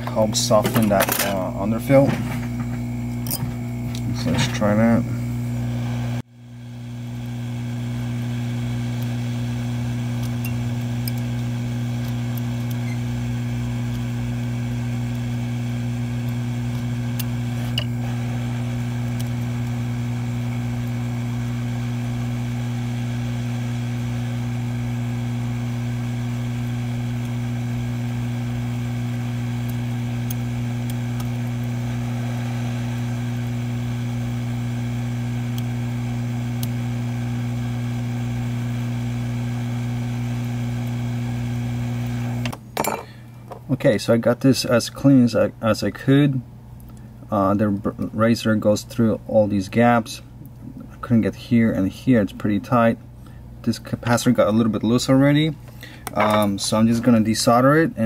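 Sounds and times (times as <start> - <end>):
hot air station blowing: 0.0 - 42.5.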